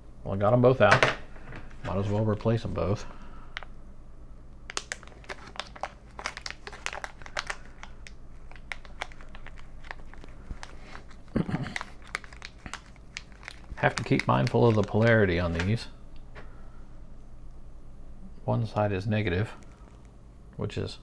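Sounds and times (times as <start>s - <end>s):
plastic wrapper crinkling: 4.7s - 15.9s, 19.4s - 20.2s.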